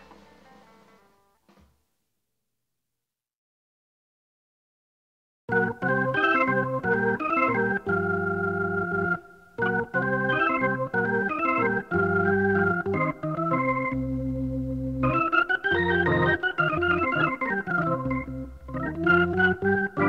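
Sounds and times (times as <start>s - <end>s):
organ playing blues: 5.5s - 20.0s.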